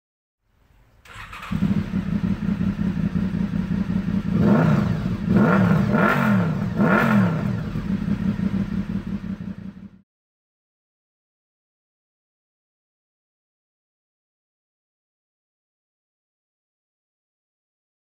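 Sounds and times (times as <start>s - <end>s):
motorcycle engine idling and revving: 1.0s - 10.0s.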